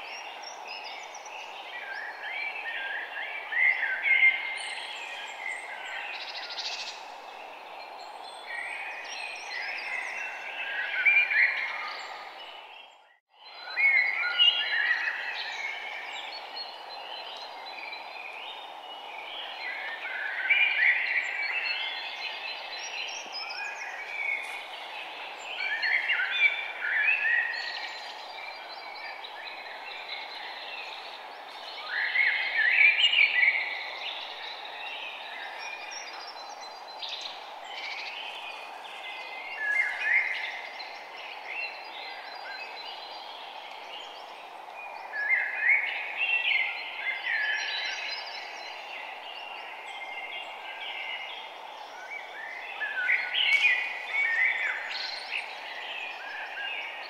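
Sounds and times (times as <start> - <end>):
small birds chirping and singing: 0.0 - 57.0
steady background hiss: 13.8 - 57.0.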